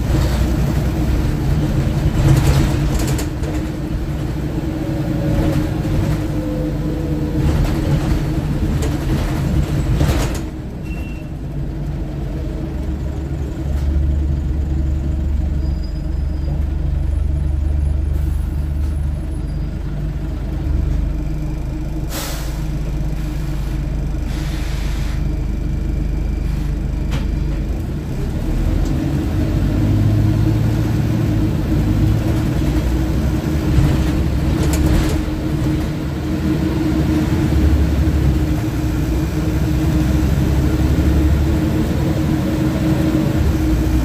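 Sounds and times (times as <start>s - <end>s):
bus engine and drivetrain rumble: 0.0s - 44.0s
air brakes hissing: 22.1s - 25.5s, 26.4s - 26.9s.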